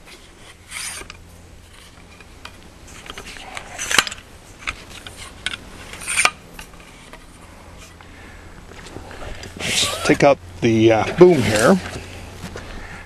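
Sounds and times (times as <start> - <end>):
metal tripod legs sliding and clinking: 0.1 - 8.0, 11.0 - 12.0.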